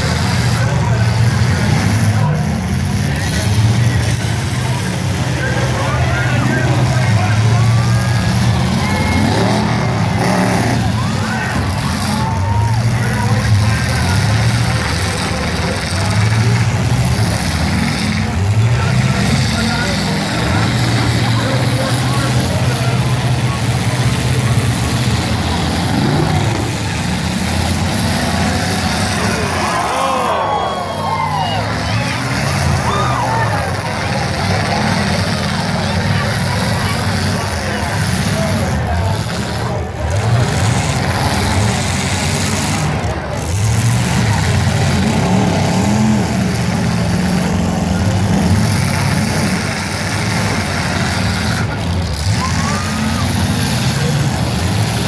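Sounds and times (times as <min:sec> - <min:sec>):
car engines droning: 0:00.0 - 0:55.0.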